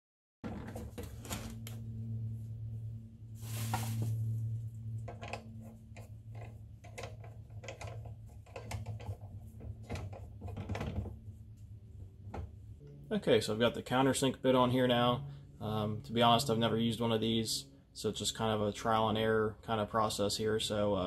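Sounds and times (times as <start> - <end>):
steady low hum: 0.6 - 21.0
metallic clicks and rattles of chuck: 5.0 - 11.1.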